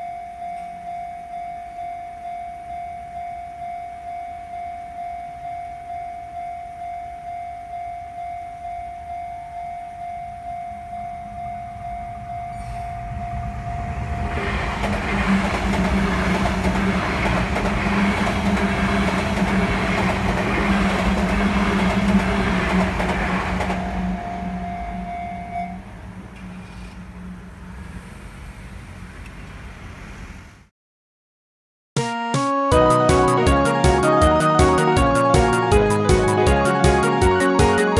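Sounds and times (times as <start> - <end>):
railway crossing alarm: 0.0 - 27.7
train rumbling past: 10.8 - 30.7.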